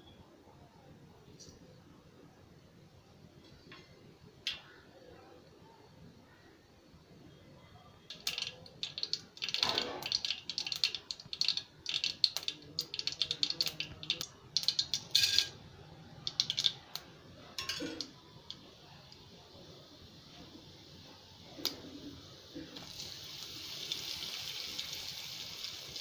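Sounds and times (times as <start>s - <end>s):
mustard seeds popping in hot oil: 4.5s - 4.8s, 8.1s - 20.4s, 21.4s - 26.0s.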